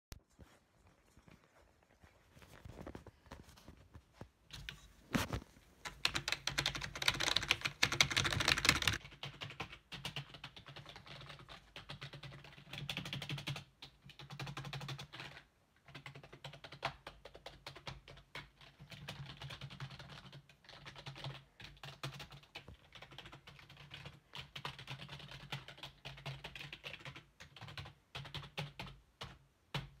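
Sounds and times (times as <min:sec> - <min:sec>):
keyboard typing: 0:05.8 - 0:30.0.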